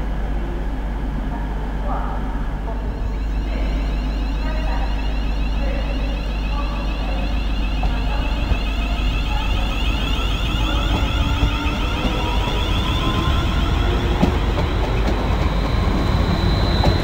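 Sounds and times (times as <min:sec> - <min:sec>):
train electric whine: 0:02.4 - 0:17.0
wheels rumbling on rails: 0:04.7 - 0:17.0.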